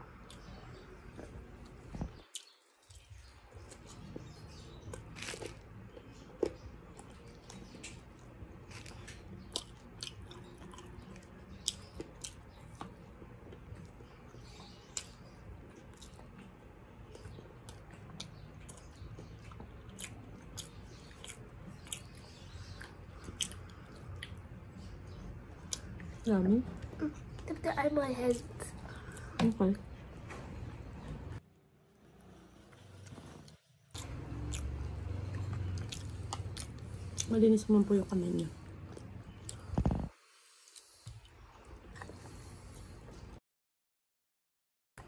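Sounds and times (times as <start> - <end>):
person chewing food: 0.2 - 24.6, 25.5 - 26.2, 33.1 - 37.3, 38.6 - 43.4.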